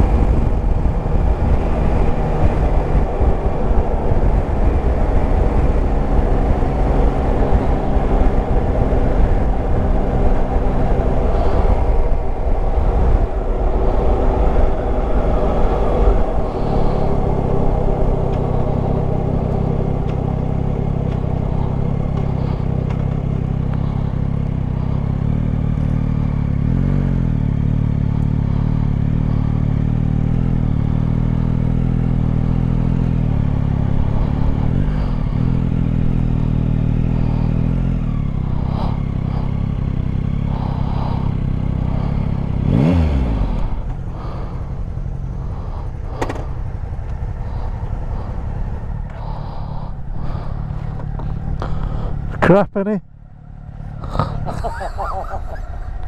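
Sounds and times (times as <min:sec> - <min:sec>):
wind rushing: 0:00.0 - 0:22.8
motorcycle engine: 0:00.0 - 0:56.0.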